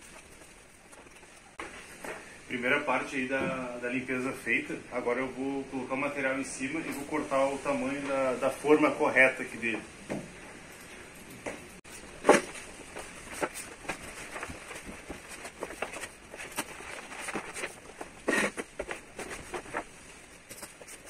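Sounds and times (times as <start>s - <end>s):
vinyl film rustling: 0.0s - 2.4s, 11.8s - 21.0s.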